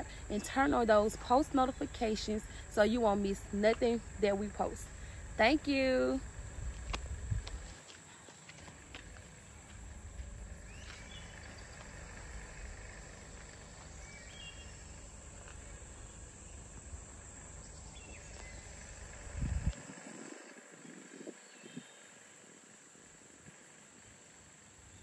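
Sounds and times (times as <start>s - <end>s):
high insect drone: 0.0s - 25.0s
low microphone rumble: 2.0s - 7.8s, 9.4s - 22.0s
bird chirps: 14.0s - 15.0s.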